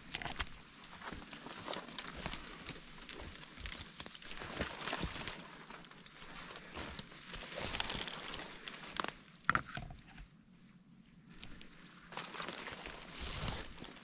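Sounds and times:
twigs snapping: 0.0s - 9.2s
footsteps through brush and leaves: 0.0s - 9.3s, 11.4s - 14.0s.

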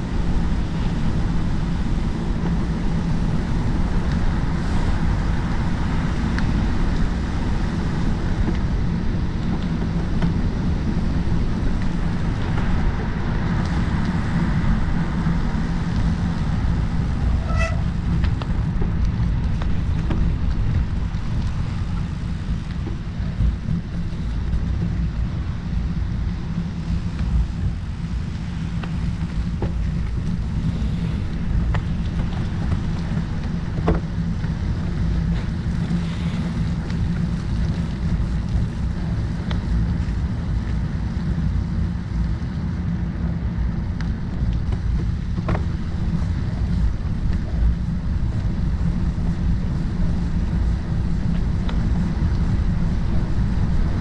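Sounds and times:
road and tyre noise: 0.0s - 54.0s
wind rumbling on microphone: 0.0s - 54.0s.

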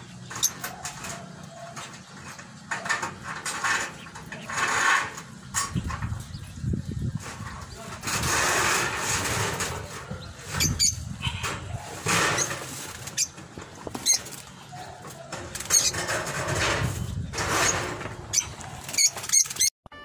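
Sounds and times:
caged birds chirping: 0.0s - 19.7s
plastic tarpaulin rustling: 6.9s - 14.7s.

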